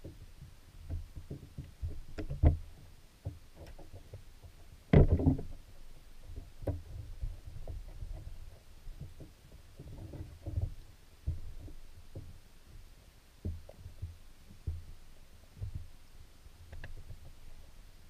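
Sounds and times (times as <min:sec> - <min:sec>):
muffled underwater knocks: 0:00.9 - 0:05.6, 0:06.3 - 0:12.4, 0:13.4 - 0:15.0, 0:15.6 - 0:15.9
underwater clicks: 0:16.7 - 0:17.4.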